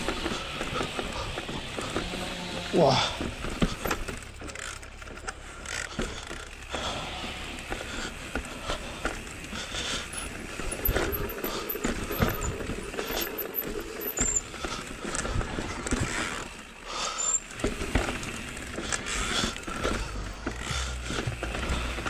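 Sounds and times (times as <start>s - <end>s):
bike knocks and rattles: 0.0s - 22.0s
tyres rolling over rock: 0.0s - 22.0s.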